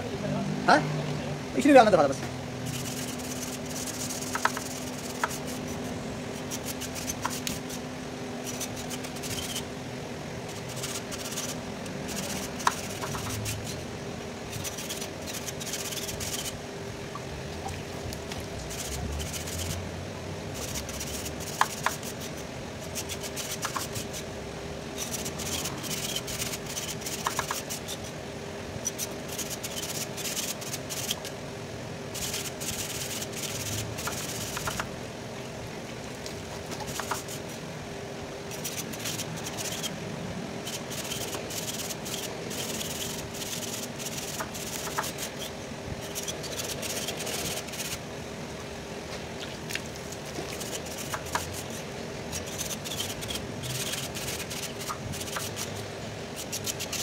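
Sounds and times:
steady hum: 0.0 - 57.0
tool scraping radiator core: 2.7 - 7.8, 8.4 - 9.7, 10.5 - 13.9, 14.5 - 16.6, 18.6 - 19.8, 20.6 - 24.2, 25.0 - 28.1, 28.8 - 31.3, 32.1 - 34.9, 36.8 - 37.6, 38.5 - 40.0, 40.6 - 48.0, 50.5 - 55.8, 56.4 - 57.0.

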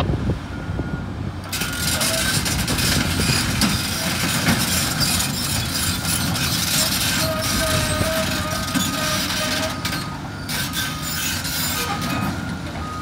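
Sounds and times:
excavator engines and hydraulics: 0.0 - 13.0.

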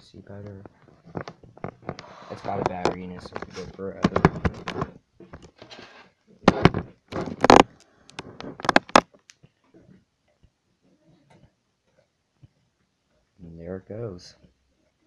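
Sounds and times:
objects knocking and rattling: 0.5 - 10.0.

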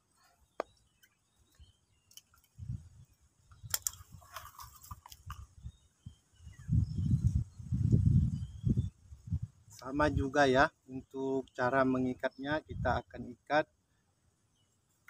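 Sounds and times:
wire clicking and scraping: 3.6 - 5.5.

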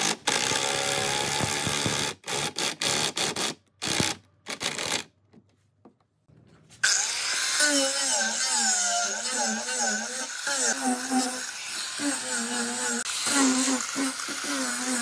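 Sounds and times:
angle grinder sanding wood: 6.8 - 15.0.

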